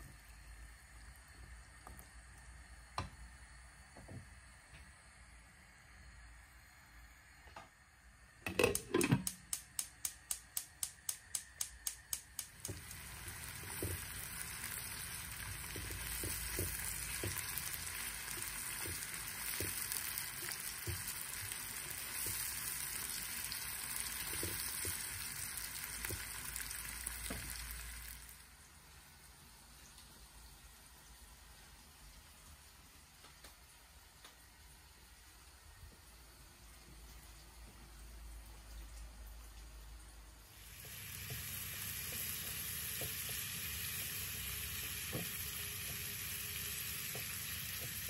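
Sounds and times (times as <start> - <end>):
onions sizzling in oil: 0.0 - 30.8, 40.4 - 48.0
gas hob igniter clicking: 8.4 - 23.1.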